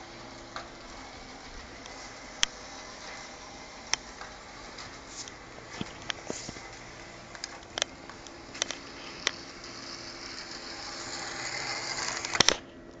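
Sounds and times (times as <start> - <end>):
model railcar motor whirring: 0.0 - 12.6.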